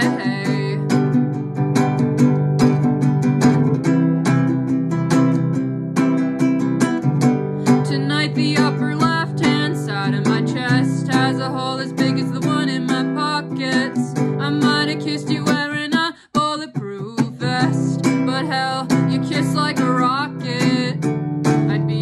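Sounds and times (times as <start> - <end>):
woman singing: 0.0 - 1.4, 7.6 - 22.0
acoustic guitar strumming: 0.0 - 22.0.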